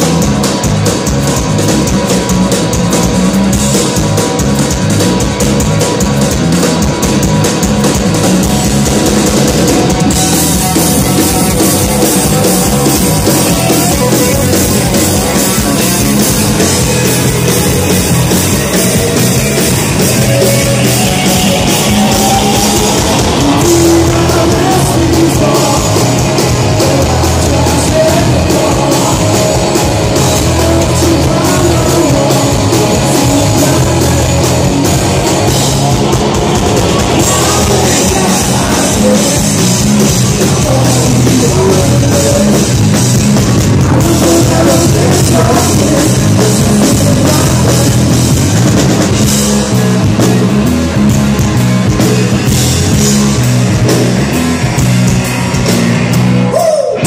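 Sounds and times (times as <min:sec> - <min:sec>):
bass guitar: 0:00.0 - 0:57.0
drum kit: 0:00.0 - 0:57.0
electric guitar: 0:00.0 - 0:57.0
man singing: 0:10.2 - 0:43.0, 0:43.7 - 0:48.4.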